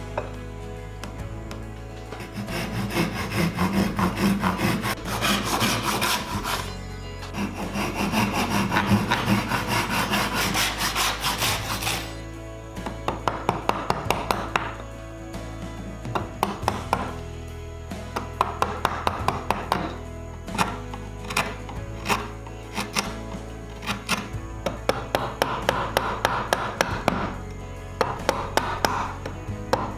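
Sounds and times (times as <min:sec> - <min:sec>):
hand saw cutting wood: 0:02.0 - 0:12.3, 0:18.2 - 0:27.4.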